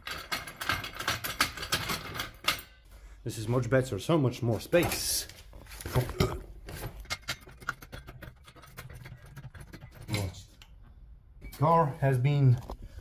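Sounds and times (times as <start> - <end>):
trolley jack clicking and clattering: 0.0 - 2.8.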